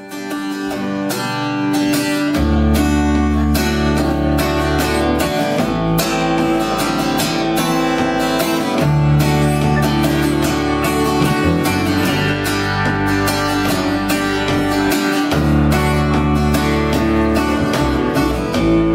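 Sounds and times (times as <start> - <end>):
acoustic guitar strumming: 0.0 - 18.9
electric bass: 0.7 - 18.9.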